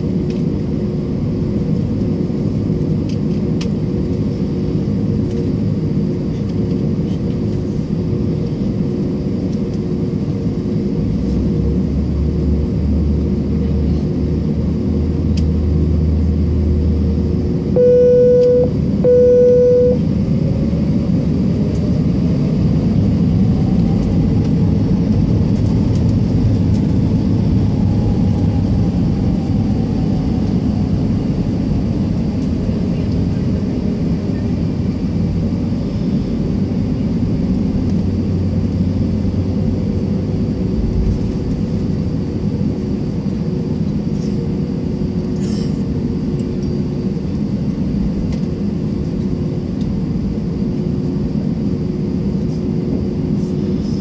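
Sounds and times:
jet engine and air system rumble: 0:00.0 - 0:54.0
electronic beeps: 0:17.8 - 0:20.0
faint rising and falling tone: 0:17.8 - 0:20.0.

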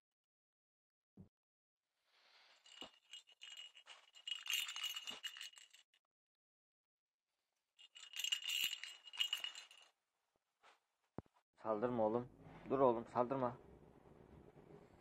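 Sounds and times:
bell ball jingling: 0:02.6 - 0:05.8, 0:07.8 - 0:09.9.

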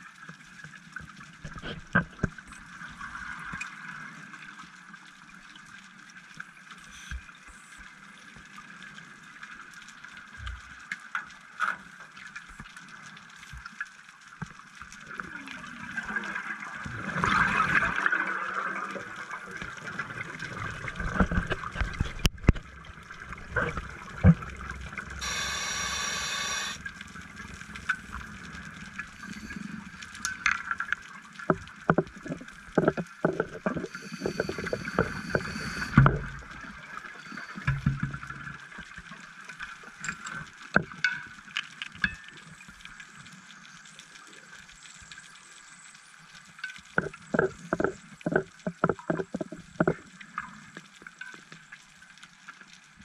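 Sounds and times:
diver inhaling through regulator: 0:25.2 - 0:26.8, 0:33.9 - 0:36.2
underwater hiss: 0:25.2 - 0:26.9, 0:29.1 - 0:30.2, 0:33.7 - 0:38.6.

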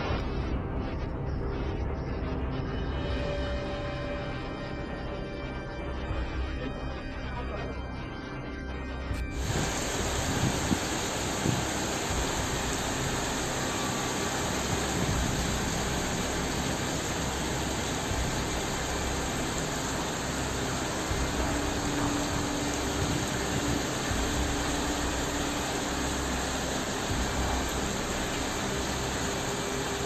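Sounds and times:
floodwater rushing: 0:09.3 - 0:30.0.

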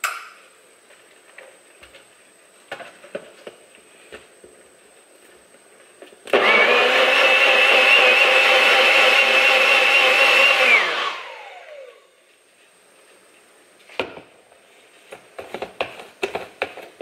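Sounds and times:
blender motor whine: 0:06.3 - 0:12.0.

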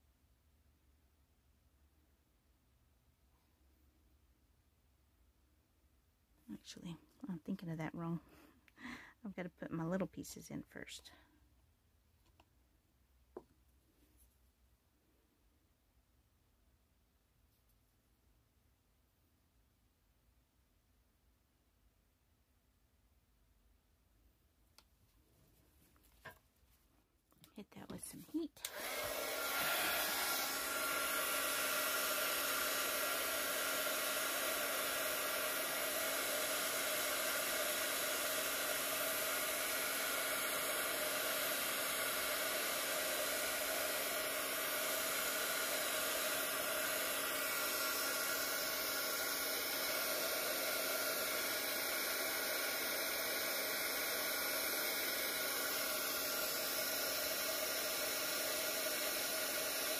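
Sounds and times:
heat gun blowing air: 0:28.6 - 0:59.9.

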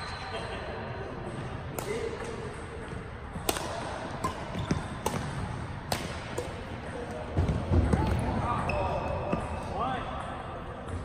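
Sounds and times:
racket striking shuttlecock: 0:01.7 - 0:08.2
shoes squeaking on court: 0:04.2 - 0:05.7, 0:07.1 - 0:09.7.

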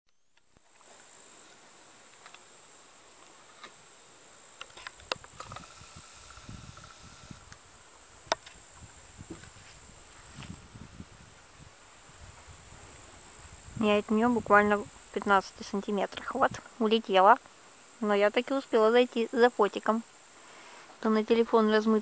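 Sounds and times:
insects chirring: 0:00.1 - 0:22.0.

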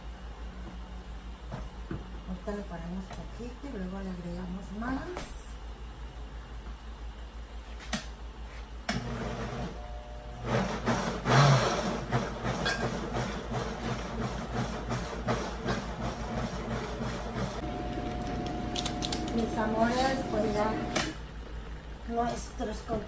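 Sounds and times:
blender motor running: 0:09.0 - 0:21.2.

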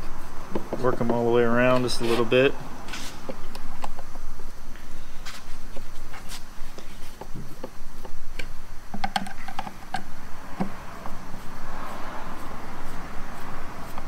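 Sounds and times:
even rushing noise: 0:10.1 - 0:14.0.

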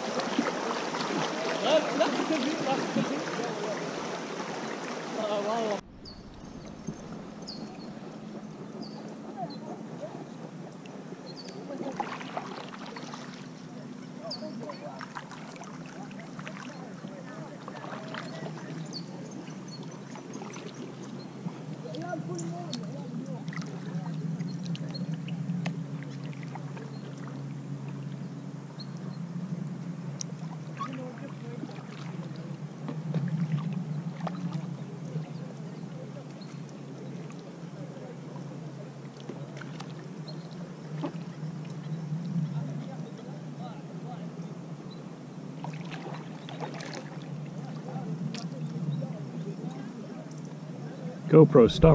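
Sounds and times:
river water rushing: 0:00.0 - 0:09.5
paddle strokes splashing water: 0:00.0 - 0:44.6, 0:45.4 - 0:51.9
water moving along hull: 0:00.0 - 0:51.9
bird chirping: 0:05.9 - 0:09.8.

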